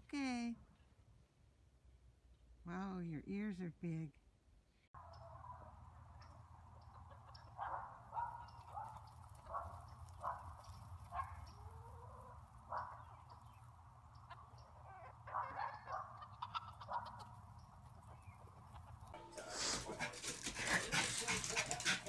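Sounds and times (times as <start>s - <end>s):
chickens clucking and squawking: 5.0s - 22.0s.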